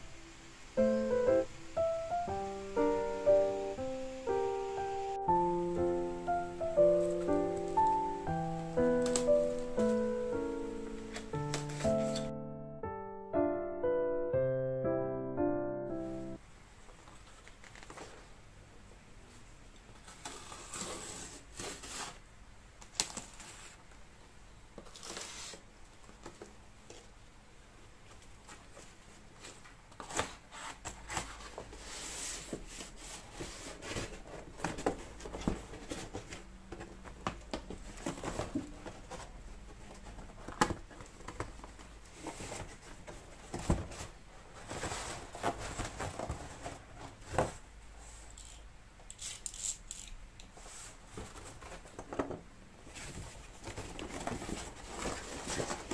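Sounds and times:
cardboard flaps rustling and scraping: 11.0 - 12.3, 28.2 - 48.2, 50.6 - 55.9
packing tape tearing: 11.0 - 12.3, 48.4 - 50.2.

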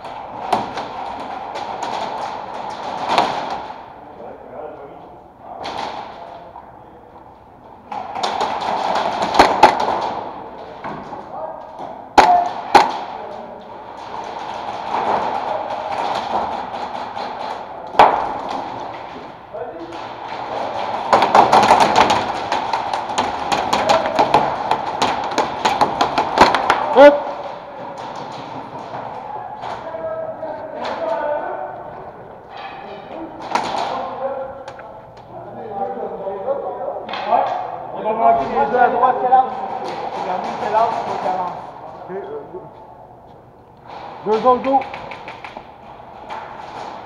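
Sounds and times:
pellets cracking against plywood: 0.0 - 3.8, 7.9 - 31.2, 33.4 - 34.8, 43.8 - 47.0
airsoft guns firing: 7.9 - 10.7, 12.1 - 29.8.

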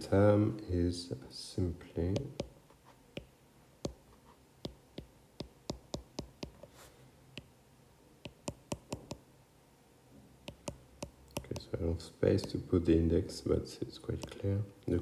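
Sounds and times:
stylus tapping on tablet screen: 2.1 - 4.0, 4.6 - 6.7, 8.2 - 9.2, 10.4 - 11.8, 12.4 - 12.6, 14.2 - 14.4.

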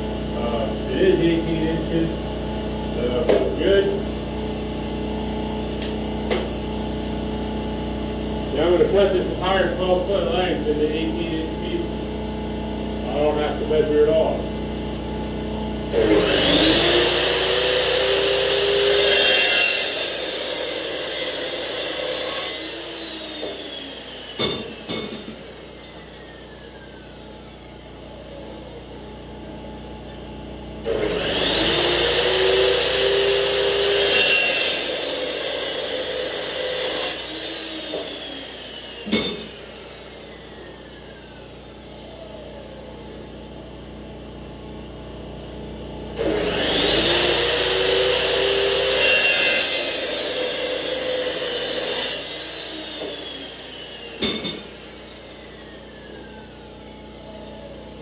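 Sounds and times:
motor winding down whine: 0.0 - 58.0
chop saw cutting steel: 15.9 - 27.2, 30.8 - 41.2, 46.2 - 56.4
sharp metal clank: 24.4 - 25.4, 39.1 - 39.6, 54.2 - 54.7.

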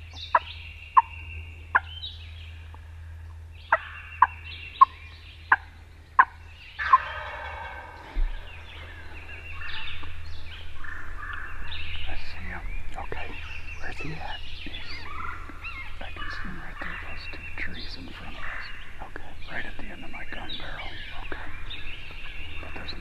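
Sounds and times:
turkey gobbling: 0.3 - 1.1, 1.7 - 2.1, 3.7 - 12.6, 13.2 - 19.1
short sharp turkey calls: 3.7 - 10.1.

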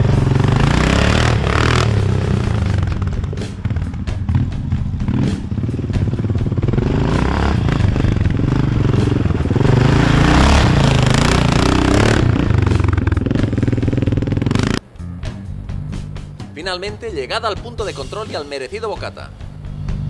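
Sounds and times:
motorcycle engine passing by: 0.0 - 14.8, 19.6 - 20.0.

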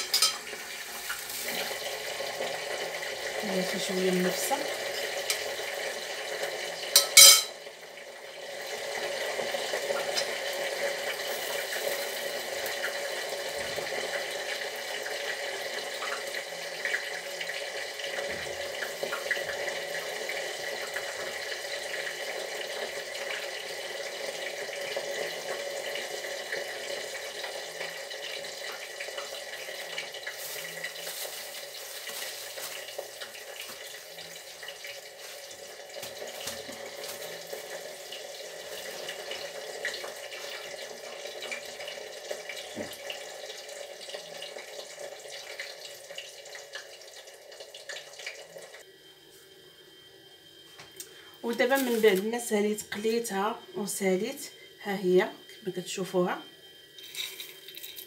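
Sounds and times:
oil sizzling with frying corn: 0.0 - 58.0.

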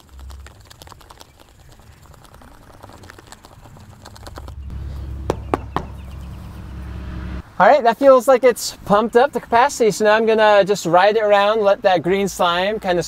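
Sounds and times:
low rumble: 3.7 - 7.5.

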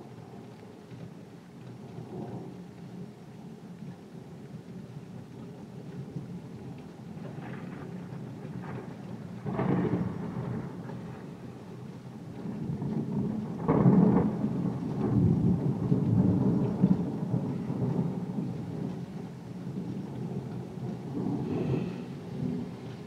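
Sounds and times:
steady rain: 0.0 - 23.0
thunder rolling: 6.0 - 23.0.

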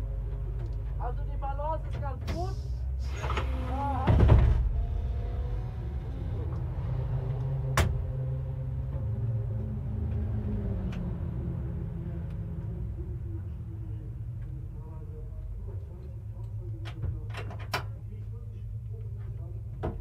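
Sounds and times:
low steady rumble: 0.0 - 20.0
muffled voices: 12.4 - 20.0.

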